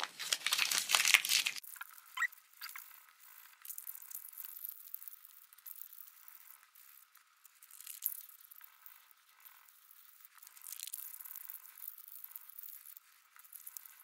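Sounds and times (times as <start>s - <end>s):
banknotes crinkling: 0.0s - 1.6s.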